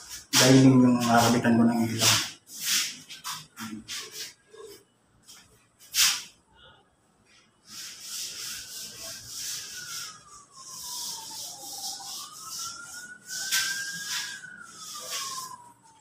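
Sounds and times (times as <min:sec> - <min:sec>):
faint thin whistle-like tone: 0:07.4 - 0:16.0.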